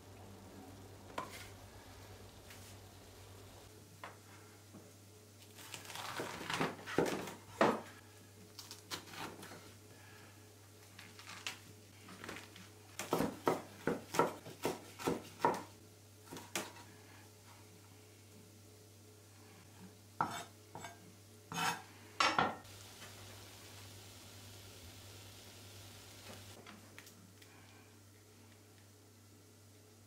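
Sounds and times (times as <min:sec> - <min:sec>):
knife chopping lettuce on wood: 0:13.0 - 0:15.7.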